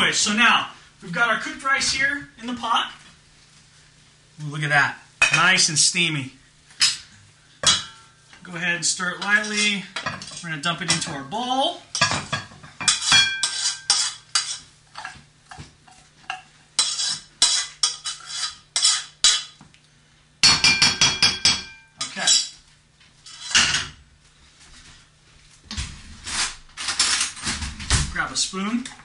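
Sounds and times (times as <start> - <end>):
saucepan clanking and scraping: 9.1 - 19.6, 23.2 - 24.0.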